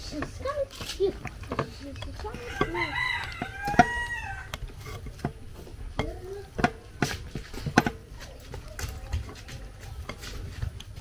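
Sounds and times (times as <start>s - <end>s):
rooster crowing: 2.4s - 4.6s.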